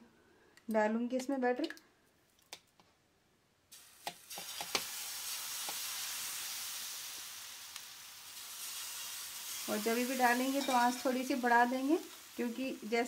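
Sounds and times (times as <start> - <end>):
batter sizzling on hot pan: 3.7 - 13.0.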